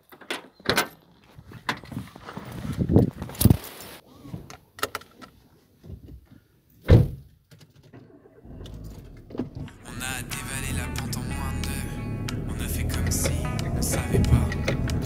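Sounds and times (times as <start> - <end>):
car door shutting: 8.5 - 9.8, 10.9 - 15.0
low steady rumble: 8.5 - 15.0.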